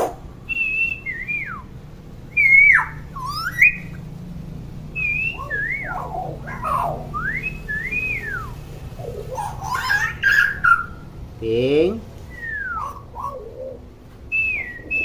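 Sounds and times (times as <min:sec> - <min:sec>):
myna whistling: 0:00.4 - 0:01.7, 0:02.3 - 0:04.0, 0:04.9 - 0:11.0, 0:12.3 - 0:15.0.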